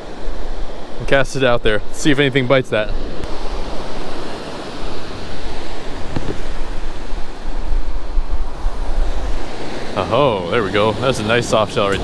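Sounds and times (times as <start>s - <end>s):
ocean surf on beach: 0.0s - 12.0s
wind rumbling on microphone: 2.7s - 12.0s.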